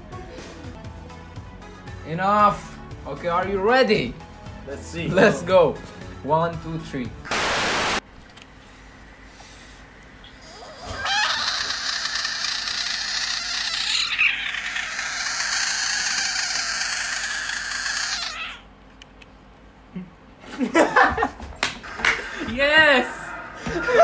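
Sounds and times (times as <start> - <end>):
frog screaming: 10.4 - 18.7.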